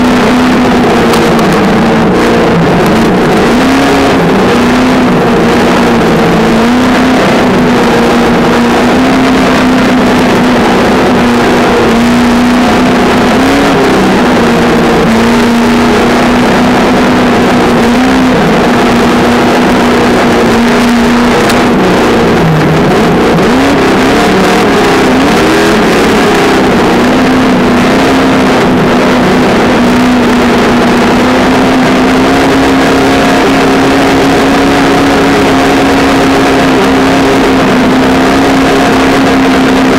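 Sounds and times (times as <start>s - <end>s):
constant noisy rush: 0.0s - 39.9s.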